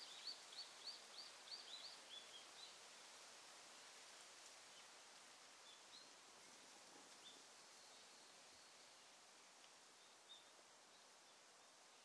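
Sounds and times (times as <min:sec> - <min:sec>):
faint outdoor hiss: 0:00.0 - 0:12.0.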